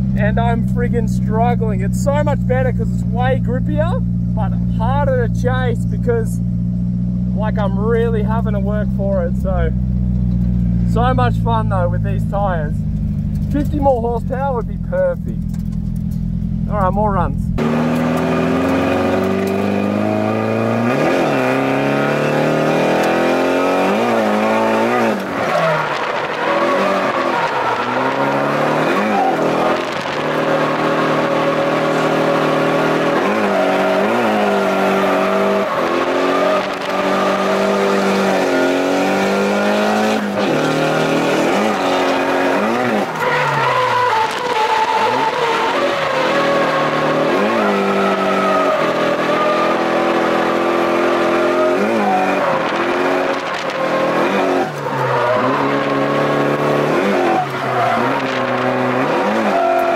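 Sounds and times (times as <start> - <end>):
car engine revving: 0.0 - 59.9
tyres squealing: 23.2 - 59.9.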